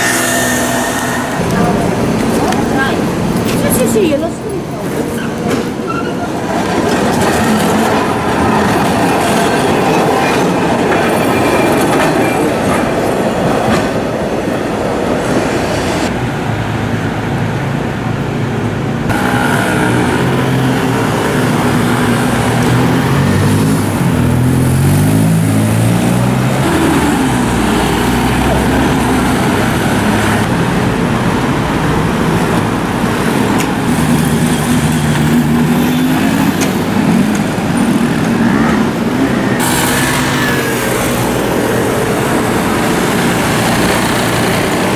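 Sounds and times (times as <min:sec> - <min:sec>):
cars passing: 0:00.0 - 0:44.9
tram rumbling on rails: 0:00.0 - 0:44.9
scooter engines accelerating: 0:19.0 - 0:44.9.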